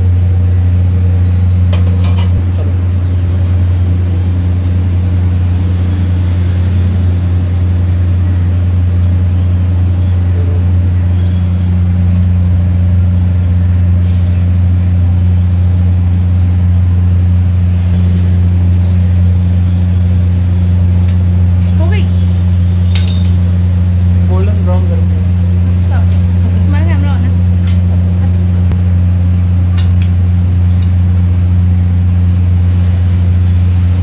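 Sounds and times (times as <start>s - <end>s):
low mechanical hum: 0.0s - 34.0s.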